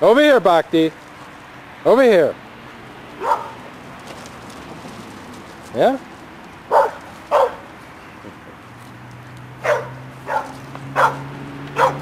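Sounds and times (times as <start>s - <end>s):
dog barking: 3.2s - 3.6s, 6.7s - 7.6s, 9.6s - 12.0s.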